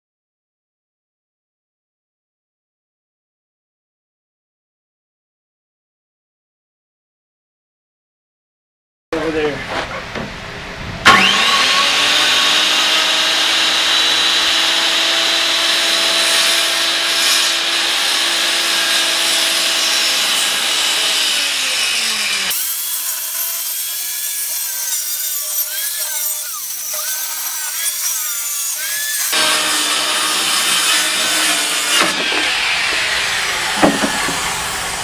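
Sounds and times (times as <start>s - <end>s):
circular saw whine: 11.0s - 22.6s, 25.4s - 35.0s.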